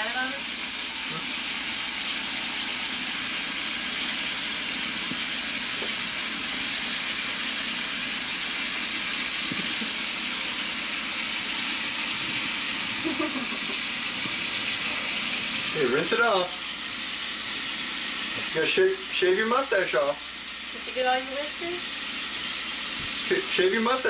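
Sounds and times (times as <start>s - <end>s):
water running from tap into sink: 0.0s - 24.0s.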